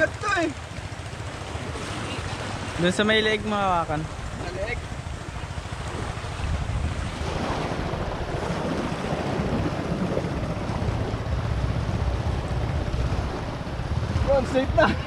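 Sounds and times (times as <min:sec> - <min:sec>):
wind buffeting microphone: 0:00.0 - 0:15.0
surf on pebble shore: 0:11.6 - 0:15.0.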